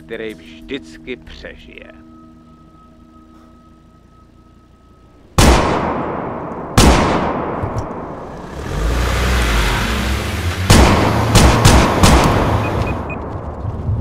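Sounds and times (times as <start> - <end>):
low rumble: 1.4 - 14.0
pistol shots echoing: 5.4 - 8.2, 10.7 - 12.7.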